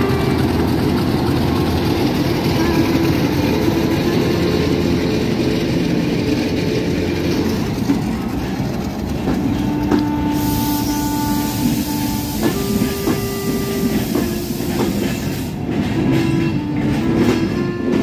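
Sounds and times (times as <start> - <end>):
wheels clattering over rail joints: 0.0 - 10.4
wheel squeal whine: 0.0 - 15.4.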